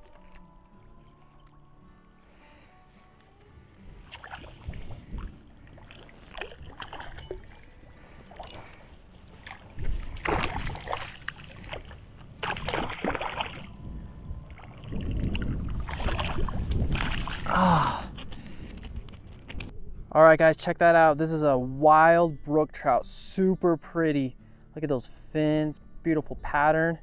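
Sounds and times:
fish splashing at surface: 0:04.0 - 0:08.7, 0:09.4 - 0:13.7.

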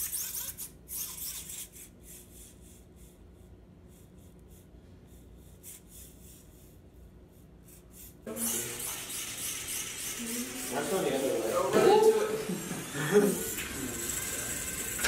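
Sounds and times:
small motors whirring: 0:00.0 - 0:02.8, 0:08.3 - 0:15.0.

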